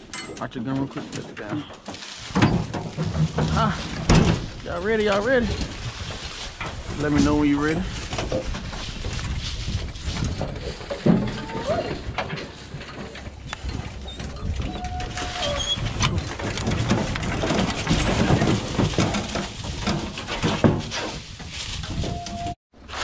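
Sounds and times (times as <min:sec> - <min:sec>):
paws rustling through leaves: 0:01.9 - 0:02.4, 0:03.2 - 0:11.1, 0:17.5 - 0:23.0
metal dog box knocks and rattles: 0:02.3 - 0:04.6, 0:10.2 - 0:21.2.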